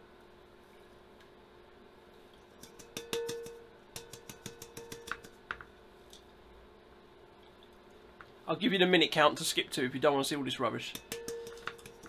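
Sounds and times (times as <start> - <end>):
metal pan ringing: 2.6 - 5.3, 10.9 - 12.0
metal wok knocking and clicking: 2.6 - 5.7, 10.9 - 12.0.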